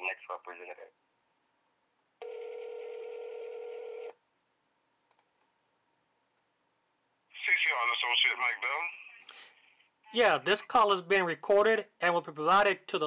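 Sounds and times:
telephone ringback tone: 2.2 - 4.1
faint click: 5.0 - 5.5.

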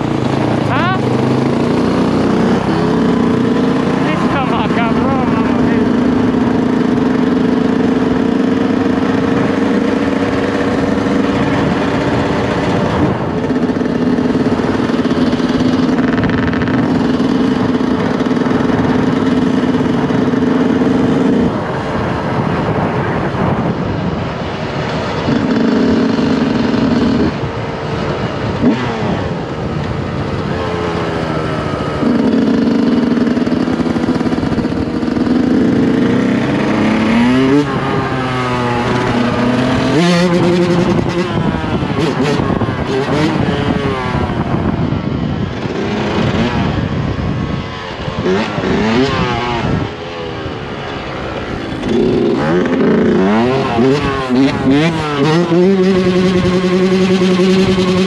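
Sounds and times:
two-stroke motorcycle engine revving: 0.0 - 58.0.

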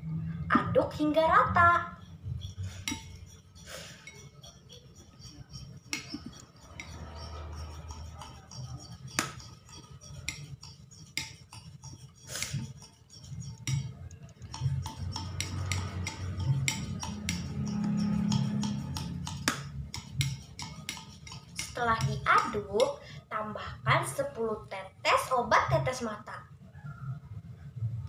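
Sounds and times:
spoon clinking against ceramic bowl: 1.7 - 23.1.

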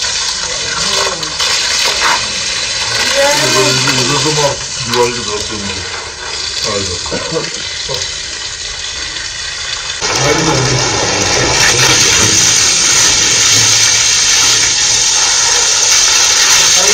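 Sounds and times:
water gushing from pipe: 0.0 - 16.9.

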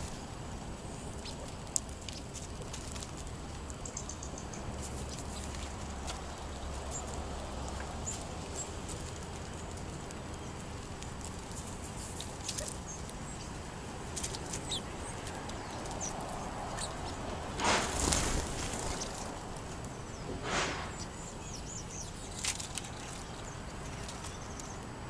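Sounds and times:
birds pecking on concrete: 0.0 - 25.0
steady low background noise: 0.0 - 25.0
wing flutters: 16.7 - 19.7, 20.3 - 21.2.

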